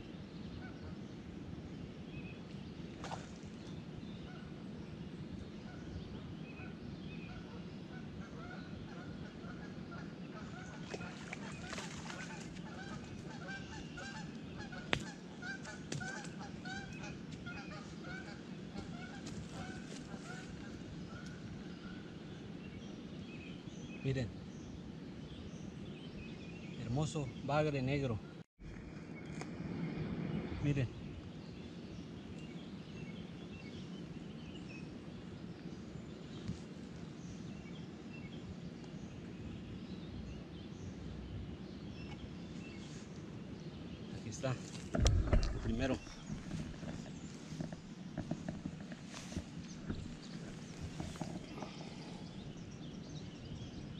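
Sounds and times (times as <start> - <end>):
geese honking: 8.3 - 21.3
steady low rumble: 28.6 - 53.9.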